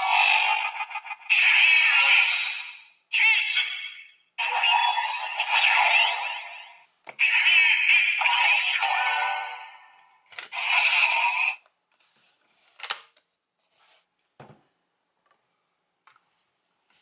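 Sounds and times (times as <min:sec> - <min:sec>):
toy electronic sound effect: 0:00.0 - 0:11.6.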